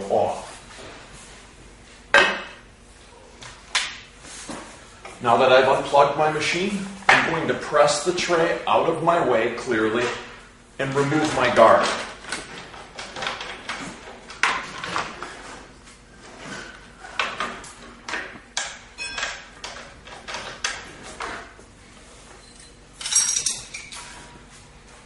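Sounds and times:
metal clicks and clinks: 0:22.4 - 0:24.1
metallic clatter with ringing: 0:22.4 - 0:24.2.

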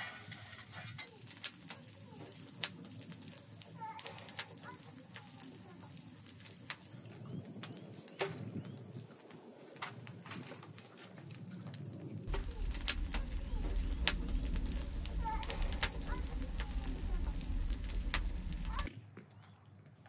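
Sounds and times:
low rush of flames: 0:00.0 - 0:18.9
wood fire crackling: 0:00.0 - 0:18.9
deep rumble: 0:12.3 - 0:18.9.

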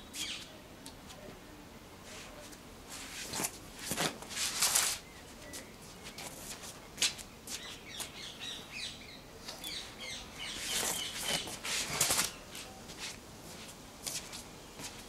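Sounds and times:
body movement rustle: 0:02.1 - 0:07.7, 0:10.5 - 0:15.0
small birds chirping: 0:07.5 - 0:12.6.

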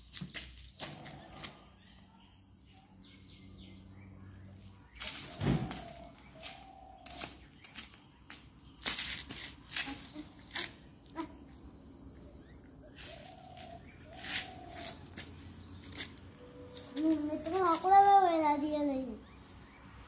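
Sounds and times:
crickets chirring: 0:00.0 - 0:20.0
sharp slaps and scuffs: 0:05.0 - 0:10.8, 0:13.1 - 0:16.2.

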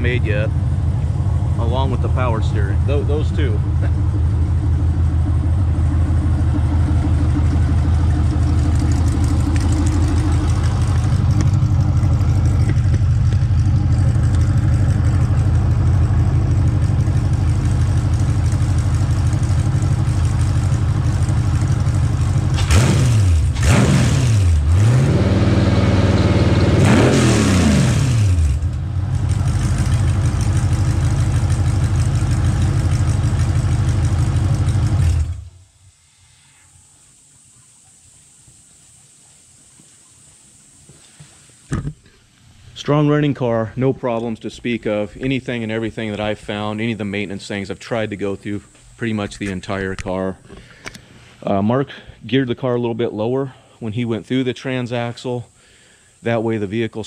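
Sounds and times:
engine idling and revving: 0:00.0 - 0:35.6.

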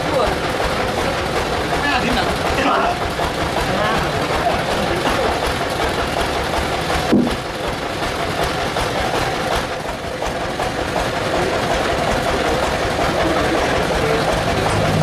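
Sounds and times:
sawmill machinery running: 0:00.0 - 0:15.0
sharp knock: 0:07.1 - 0:07.4.

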